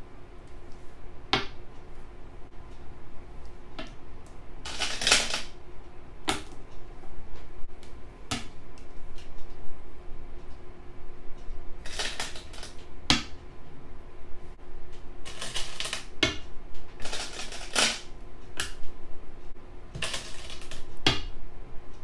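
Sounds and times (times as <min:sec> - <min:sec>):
stones rattling in bowl: 0:20.0 - 0:20.8.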